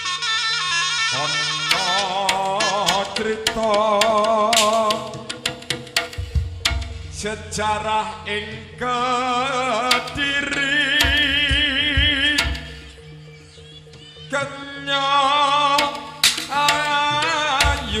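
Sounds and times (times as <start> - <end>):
sharp drum strokes: 1.7 - 7.3, 9.9 - 10.4, 15.8 - 18.0
wavering held melody: 1.7 - 18.0
steady low tones: 2.2 - 18.0.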